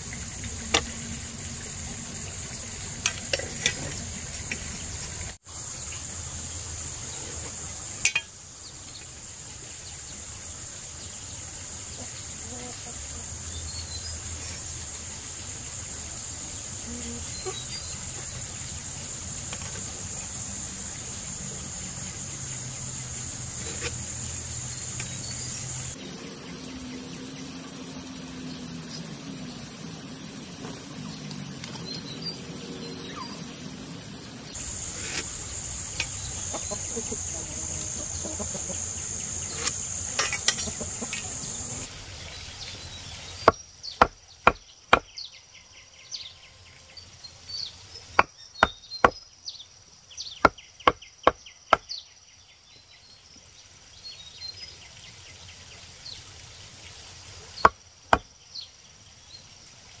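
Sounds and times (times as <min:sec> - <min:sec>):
steady hiss: 0:00.0 - 0:45.0
high even whine: 0:26.0 - 0:36.1.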